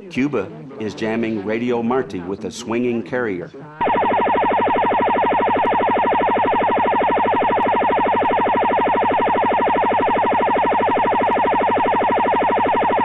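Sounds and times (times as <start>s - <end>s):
siren-like radio jamming warble: 3.8s - 13.0s.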